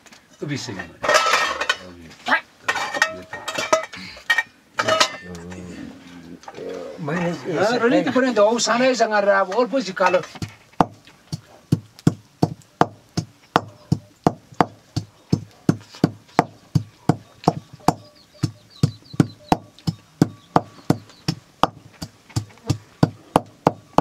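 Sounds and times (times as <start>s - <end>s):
wooden pestle pounding in metal bowl: 10.3s - 24.0s.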